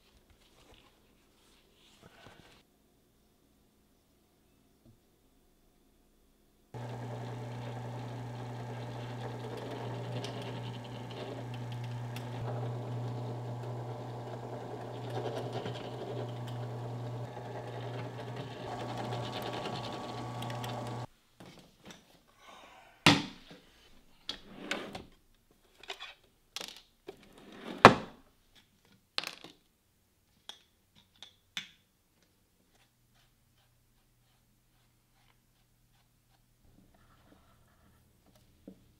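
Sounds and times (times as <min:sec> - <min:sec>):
drill press motor humming: 0:06.8 - 0:21.1.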